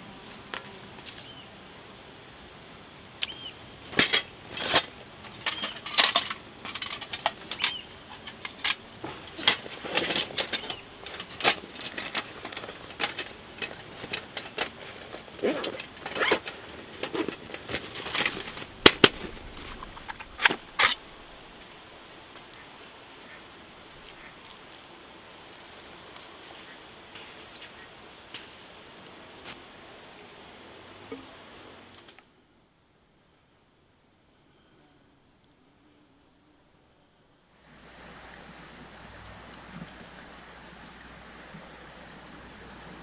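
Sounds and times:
metal grill grate clinking: 4.0 - 14.9
bag handling rustle: 4.0 - 21.4.

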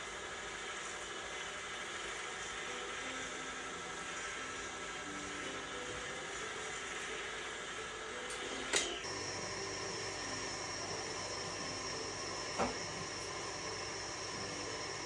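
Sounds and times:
steady hiss: 0.0 - 15.0
steady high tone: 9.0 - 15.0.

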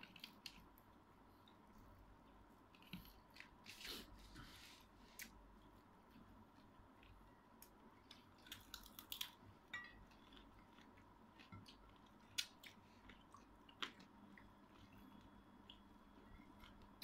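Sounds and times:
mouth clicks and small crunches: 0.0 - 3.9, 6.6 - 16.0
woman chewing: 8.0 - 17.0.

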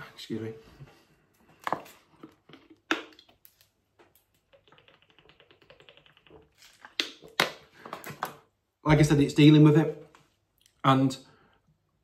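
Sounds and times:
plastic bottle crackling: 1.6 - 8.4.

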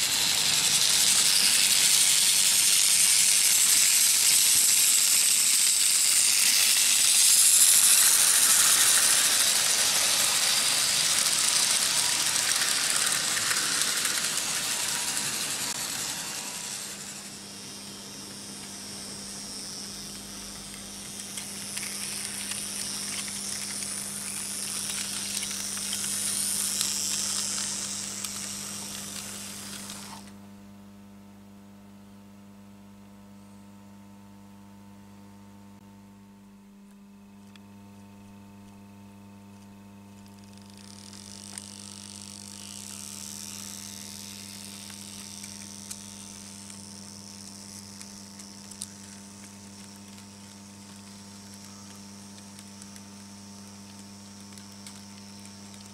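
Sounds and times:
model train rattling on track: 0.0 - 30.3
steady electrical hum: 0.0 - 55.9.

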